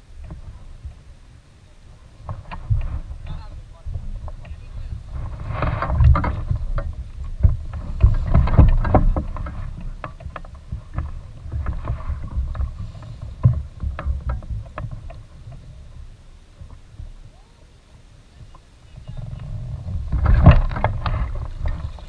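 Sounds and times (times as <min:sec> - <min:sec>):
low rumble: 0:00.0 - 0:22.0
short knocks and ticks: 0:05.6 - 0:16.0.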